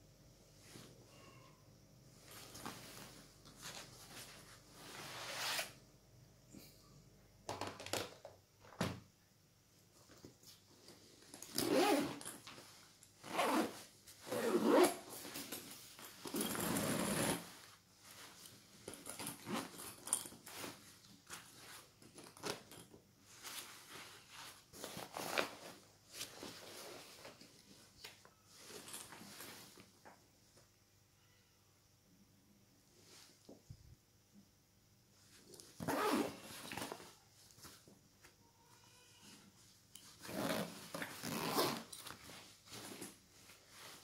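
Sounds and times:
fabric rustling: 2.2 - 5.7, 10.0 - 30.0, 39.6 - 44.0
zippers running: 11.5 - 12.3, 13.2 - 15.0, 16.2 - 17.5, 35.8 - 36.6, 40.2 - 42.1.

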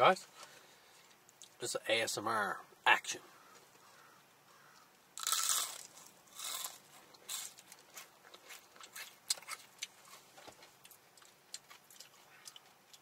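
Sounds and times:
chewing crunchy fried chicken: 5.2 - 13.0.

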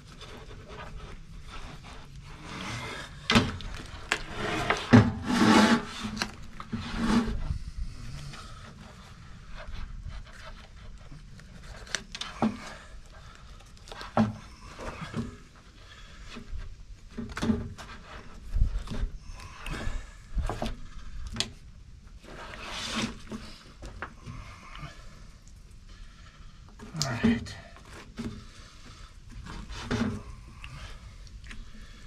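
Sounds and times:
knife scraping hide: 0.1 - 7.6, 22.2 - 23.6.

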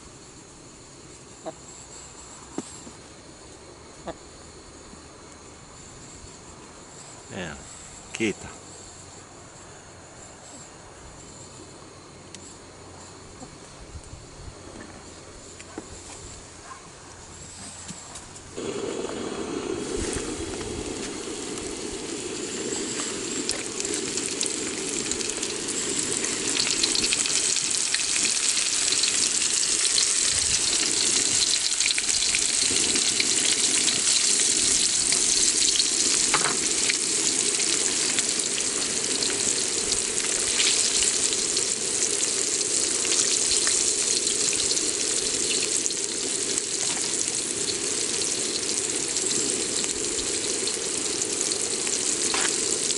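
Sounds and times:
fish sizzling in hot oil: 18.5 - 52.9
oil crackling: 18.6 - 52.9.

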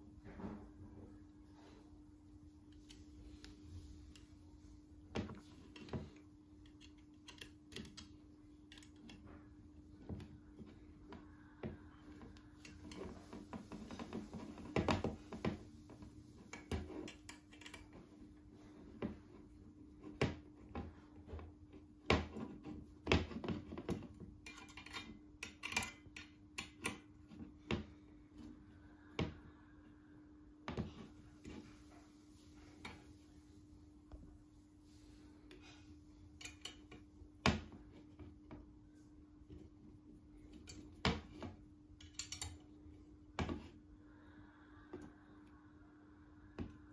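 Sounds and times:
faint hum: 24.4 - 46.9.

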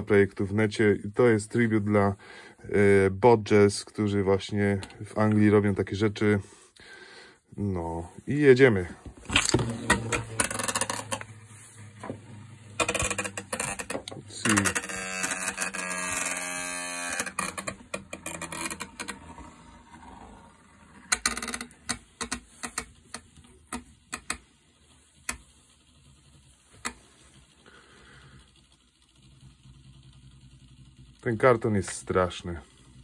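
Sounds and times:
spinning top whirring: 0.0 - 6.4, 7.5 - 33.0
top tapping and rattling in a box: 9.2 - 11.3, 12.8 - 16.2, 21.1 - 24.5.

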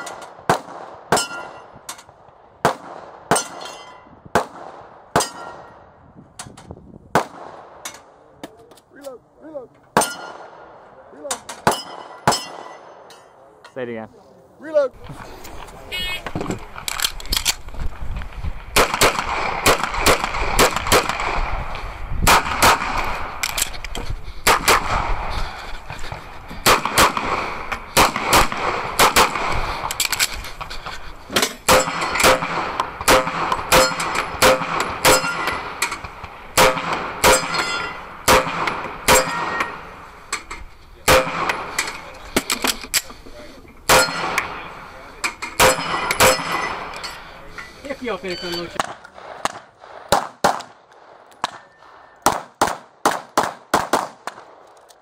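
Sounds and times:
pistol shots: 0.0 - 1.7, 2.6 - 3.7, 4.3 - 5.8, 7.1 - 7.9, 18.6 - 21.6, 22.2 - 23.5, 24.4 - 25.3, 26.6 - 30.2, 31.6 - 40.0, 41.0 - 42.1, 43.8 - 44.9, 45.6 - 47.0, 48.7 - 54.6
steel targets clanging: 3.3 - 4.1, 9.9 - 10.4, 11.3 - 13.9, 31.3 - 32.4, 33.5 - 36.1, 36.7 - 43.1, 43.8 - 48.8.

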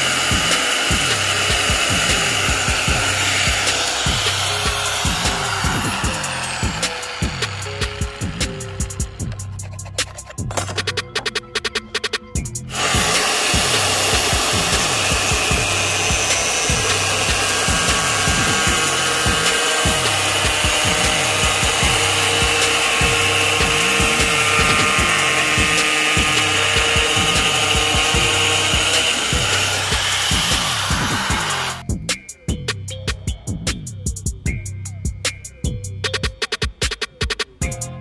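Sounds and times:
angle grinder cutting plastic: 0.0 - 10.9, 12.7 - 31.8.

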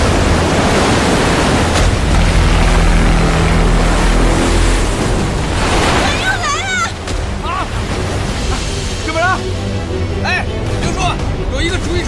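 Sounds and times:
deep steady rumble: 0.0 - 12.0
waves surging and crashing: 0.0 - 12.0
low droning tone: 1.8 - 5.7.

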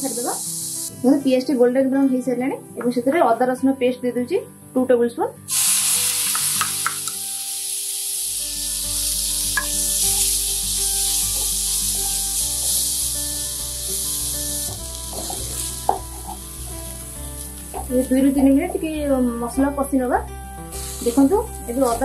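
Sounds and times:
onions sizzling in a pan: 0.0 - 1.6, 5.5 - 18.9, 20.7 - 22.0
spatula knocking on a pan: 9.6 - 9.8, 15.9 - 16.4.

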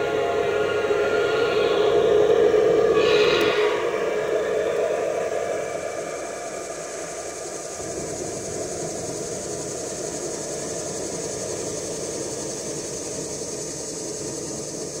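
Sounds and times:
steady high hiss: 0.0 - 15.0
model train wheels rolling on rail: 7.6 - 15.0.

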